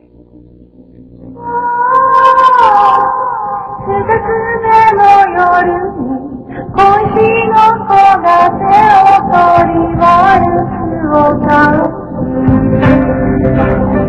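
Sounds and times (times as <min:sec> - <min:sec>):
high voice singing: 0:01.3 - 0:14.0
instrumental music: 0:03.8 - 0:14.0.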